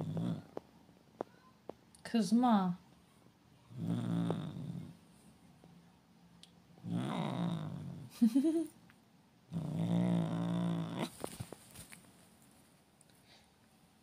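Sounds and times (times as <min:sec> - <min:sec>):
cat growling: 0:00.0 - 0:00.6, 0:03.7 - 0:05.0, 0:06.8 - 0:08.1, 0:09.5 - 0:11.2.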